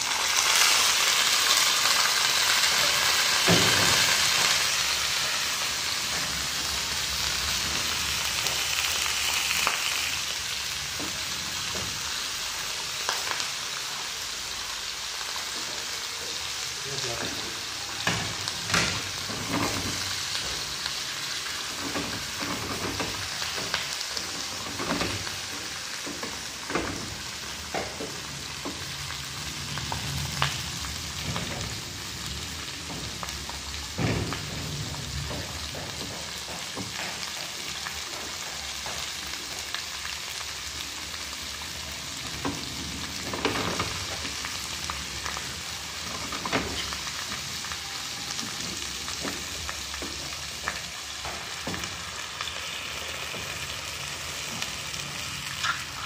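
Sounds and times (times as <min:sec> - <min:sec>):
food sizzling in a wok: 0:00.0 - 0:56.0.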